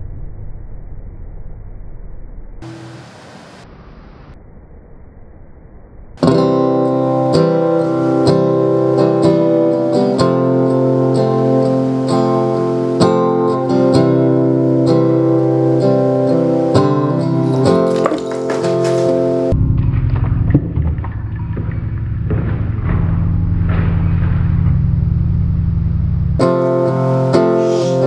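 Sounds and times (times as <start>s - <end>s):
acoustic guitar music: 2.6s - 3.4s, 6.2s - 25.8s, 26.4s - 28.0s
faint hiss: 2.6s - 4.4s, 26.4s - 28.0s.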